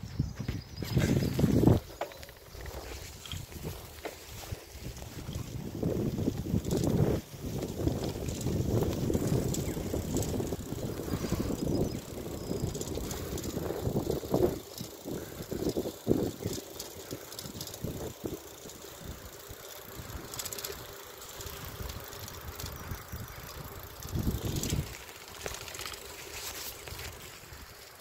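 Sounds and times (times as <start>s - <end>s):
wind rushing over microphone: 0.0s - 1.9s, 2.5s - 18.4s, 21.5s - 25.0s
bicycle rattling: 0.2s - 28.0s.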